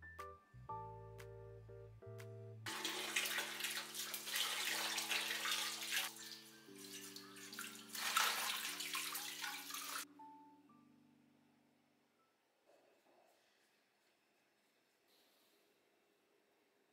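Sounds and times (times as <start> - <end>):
soft background music: 0.0 - 14.0
faucet water splashing in sink: 2.7 - 10.1.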